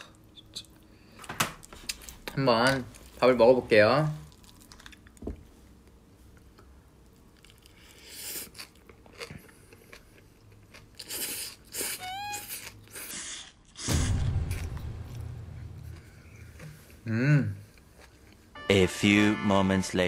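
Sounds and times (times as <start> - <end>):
person chewing food: 1.6 - 2.3, 4.2 - 5.2, 5.8 - 13.8, 17.7 - 18.5
short rising tone: 13.8 - 17.0
loud low boom: 13.8 - 17.4.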